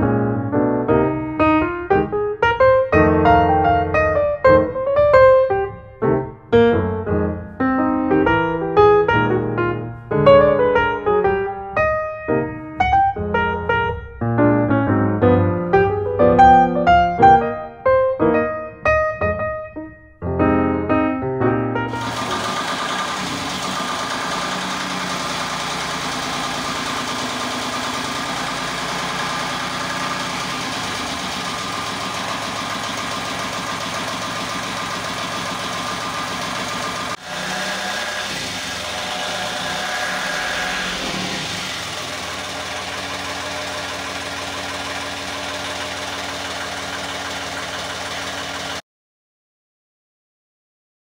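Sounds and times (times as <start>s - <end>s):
diesel engine running: 21.9s - 48.8s.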